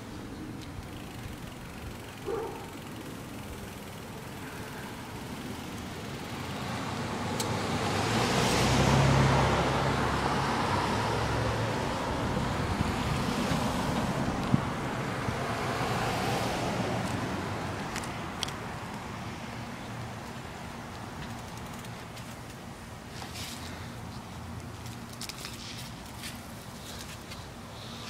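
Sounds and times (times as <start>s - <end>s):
wheels rolling on sidewalk: 0.0s - 28.0s
wind: 0.0s - 28.0s
car passing: 4.3s - 18.4s.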